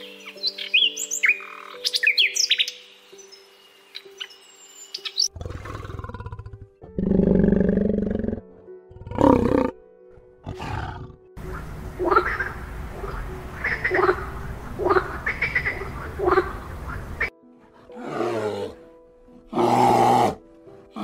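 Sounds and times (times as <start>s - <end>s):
bird chirps: 0.0s - 5.4s.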